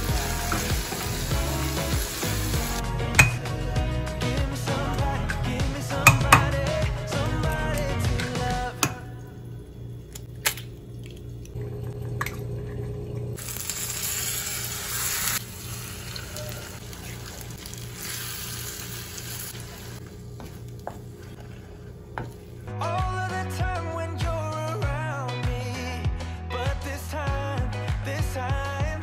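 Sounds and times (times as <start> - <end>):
eggs sizzling in frying pan: 0.0 - 2.8, 13.4 - 22.6.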